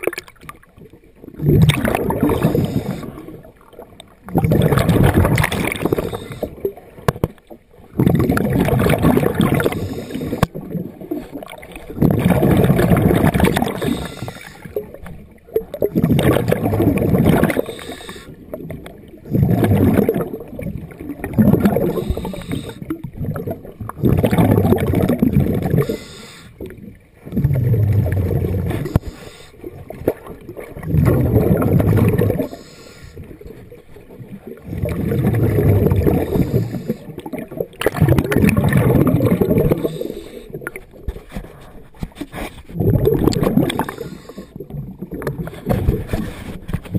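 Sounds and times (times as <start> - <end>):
diver exhaling bubbles underwater: 0.0 - 41.1, 42.7 - 46.9.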